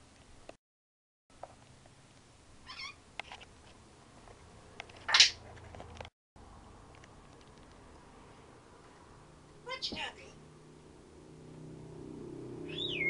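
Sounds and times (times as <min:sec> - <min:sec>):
parrot harsh call: 0:02.6 - 0:03.0
parrot warbling whistle: 0:12.7 - 0:13.0.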